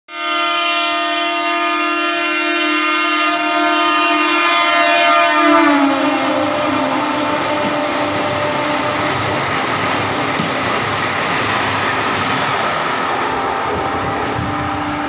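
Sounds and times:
train horn: 0:00.1 - 0:09.5, 0:13.2 - 0:15.0
train coaches running by: 0:00.1 - 0:15.0.

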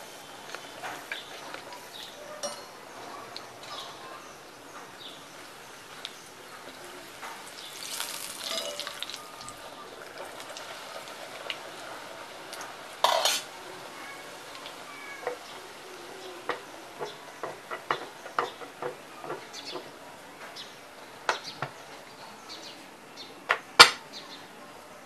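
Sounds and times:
dough sizzling in hot oil: 0:04.8 - 0:19.8
spoon scraping and tapping pan: 0:13.0 - 0:13.5, 0:16.4 - 0:19.9.

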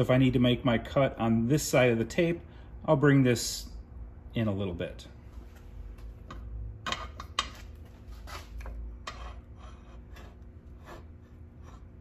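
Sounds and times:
metal scraping on steel table: 0:08.2 - 0:12.0.

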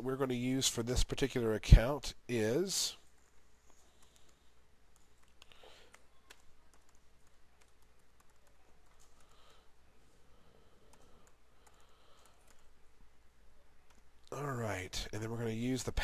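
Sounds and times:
typing on computer keyboard: 0:04.0 - 0:09.4, 0:10.8 - 0:12.7.

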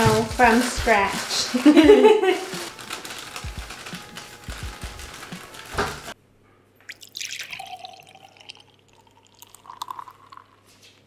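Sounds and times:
plastic bag rustling: 0:00.0 - 0:06.2
liquid gurgling and dripping: 0:06.9 - 0:10.7
liquid pouring into a bowl: 0:06.9 - 0:10.7.

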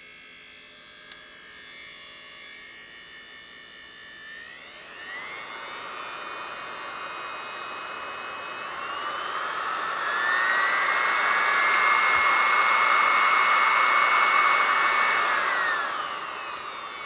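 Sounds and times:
sewing machine motor whine: 0:04.0 - 0:17.0.

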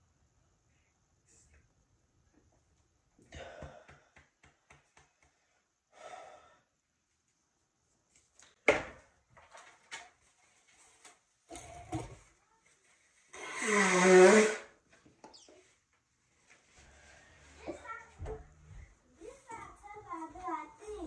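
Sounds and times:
woman sighing heavily: 0:03.3 - 0:04.1.

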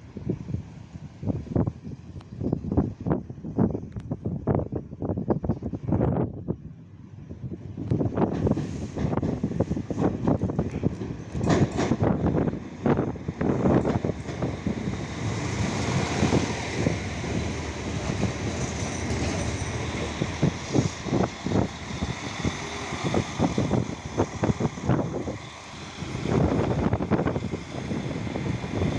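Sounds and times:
train diesel engine running: 0:06.9 - 0:28.9
train wheels rolling on rails: 0:07.6 - 0:28.9.

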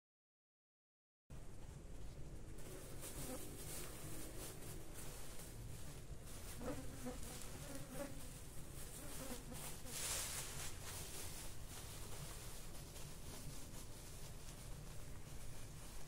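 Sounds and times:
insect buzzing: 0:06.5 - 0:08.4.

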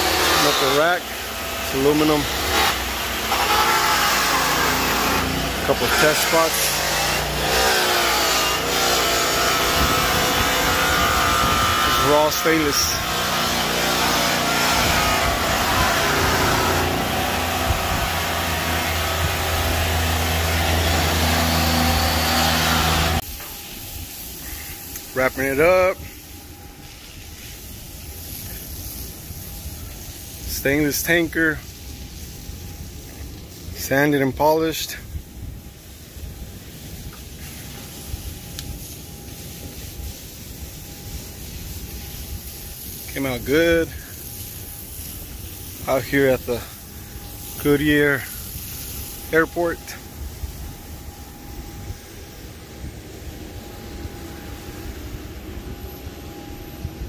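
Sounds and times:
machinery hiss: 0:00.0 - 0:57.0
machinery hum: 0:00.0 - 0:57.0
wind on microphone: 0:09.6 - 0:12.0, 0:14.7 - 0:18.3.

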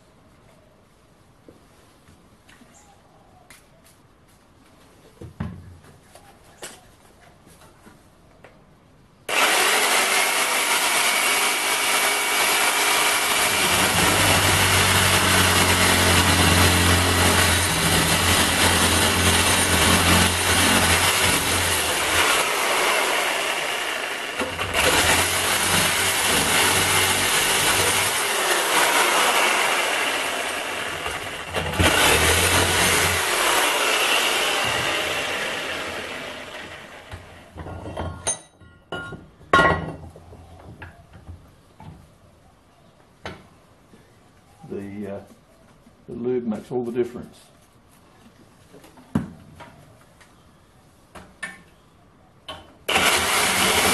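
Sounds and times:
reciprocating saw cutting metal: 0:09.3 - 0:37.1, 0:52.9 - 0:53.9.

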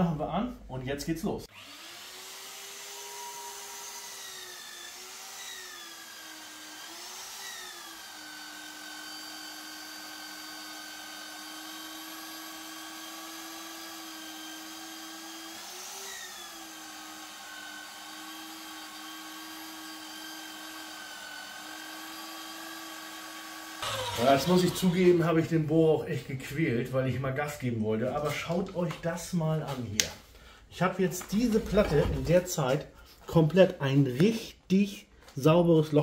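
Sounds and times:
drill motor whining through steel: 0:01.5 - 0:25.4.

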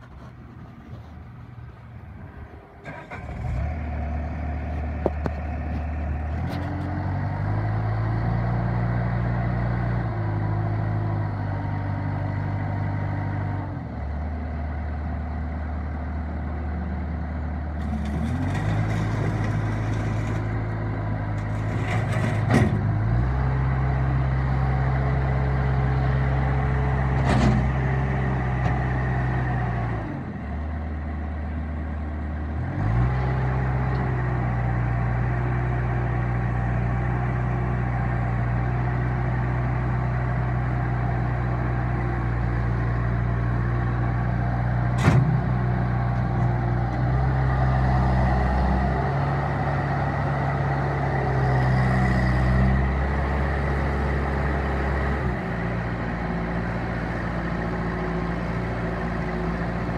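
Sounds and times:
diesel engine running: 0:00.0 - 0:59.9.

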